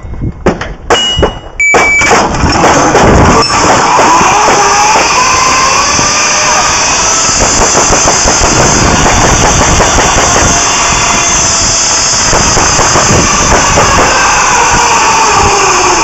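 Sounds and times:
rapid pistol shots: 0.5s - 5.2s, 7.4s - 10.6s.

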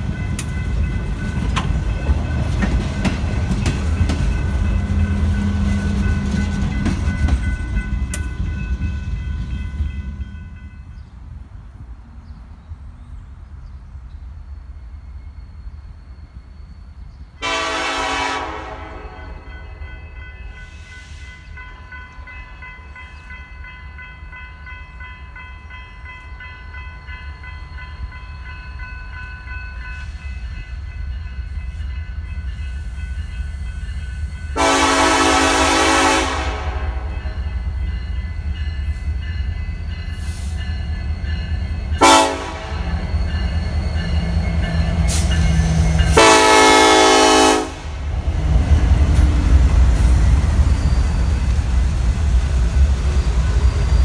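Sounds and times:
diesel engine and rail noise: 0.0s - 54.0s
locomotive air horn blasts: 17.4s - 19.8s, 34.6s - 37.1s, 42.0s - 42.8s, 46.1s - 48.0s.

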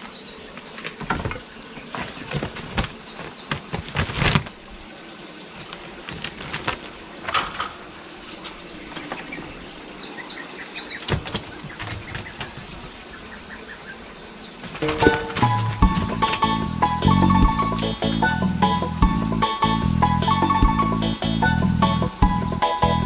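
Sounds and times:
paws and claws scratching: 0.5s - 4.6s, 5.7s - 7.0s
plastic sheet rustling: 2.0s - 4.7s.

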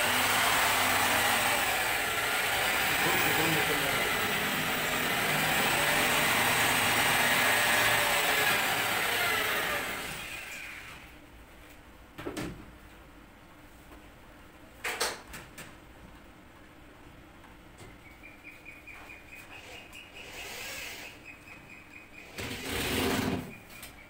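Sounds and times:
power tool running: 0.0s - 11.2s, 19.6s - 21.2s, 22.2s - 23.4s.

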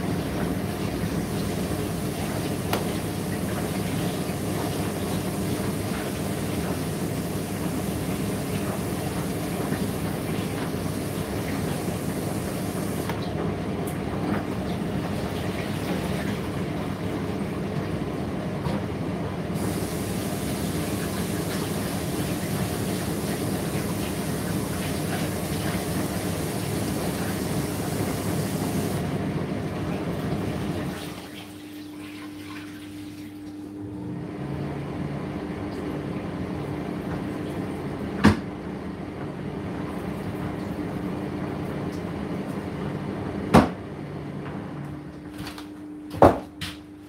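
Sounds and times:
tumble dryer running: 0.0s - 32.2s, 33.7s - 46.8s.

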